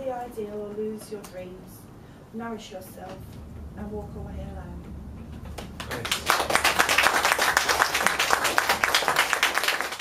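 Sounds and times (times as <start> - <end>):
audience applauding: 5.6 - 10.0.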